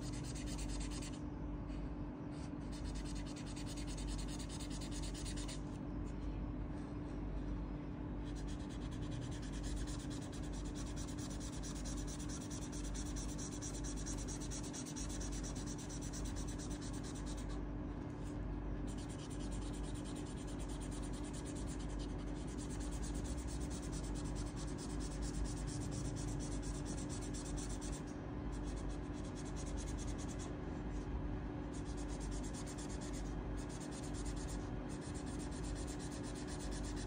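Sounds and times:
marker rubbing on paper: 0.0s - 1.2s, 2.7s - 5.6s, 8.3s - 17.6s, 18.9s - 30.5s, 31.7s - 37.0s
steady low hum: 0.0s - 37.0s.

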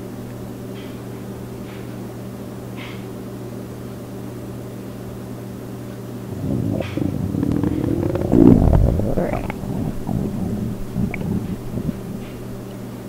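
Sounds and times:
low hum: 6.2s - 12.8s
background hiss: 6.3s - 12.8s.

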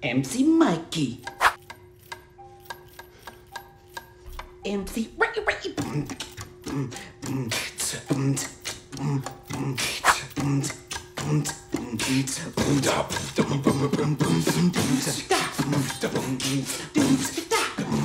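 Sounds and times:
beatboxing: 5.7s - 18.0s.

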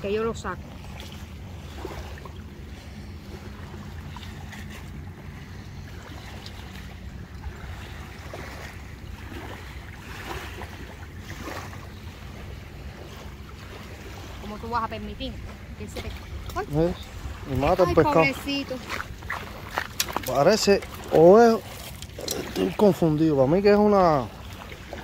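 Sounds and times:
waves lapping at shore: 0.0s - 25.0s.

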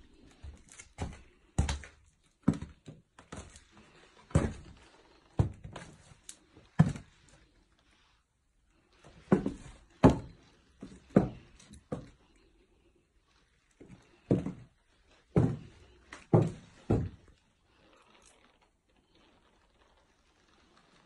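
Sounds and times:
footsteps on wooden floorboards: 0.2s - 6.1s, 6.8s - 7.1s, 9.1s - 12.2s, 13.8s - 14.7s, 15.3s - 17.4s.

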